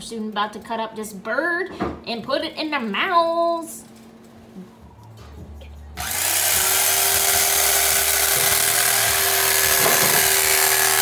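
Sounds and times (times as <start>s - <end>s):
electric carving knife motor: 6.0s - 11.0s.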